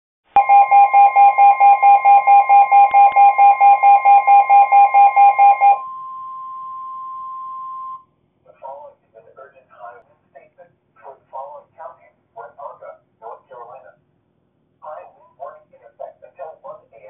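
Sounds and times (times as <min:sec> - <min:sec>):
fast pulsing alarm beeps: 0:00.4 - 0:05.9
steady warning tone: 0:00.4 - 0:08.1.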